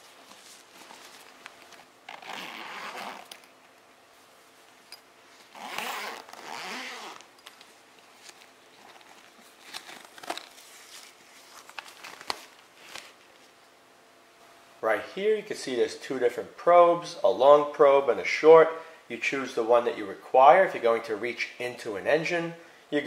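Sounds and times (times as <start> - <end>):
zipper being pulled open: 2.0 - 3.5, 5.4 - 7.3
bag handling clicks and knocks: 4.9 - 10.6.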